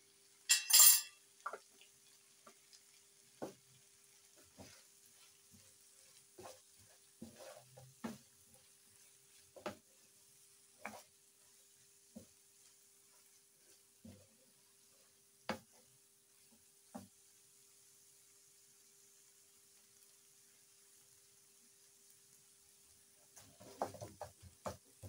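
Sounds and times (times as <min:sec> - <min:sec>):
spatula scraping a frying pan: 0:02.5 - 0:17.0, 0:23.2 - 0:25.0.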